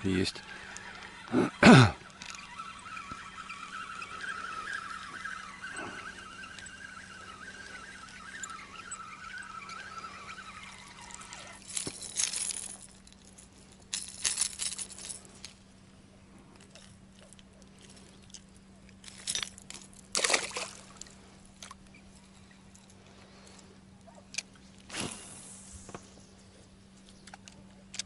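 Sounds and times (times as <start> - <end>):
water splashing and sloshing: 19.0 - 21.8.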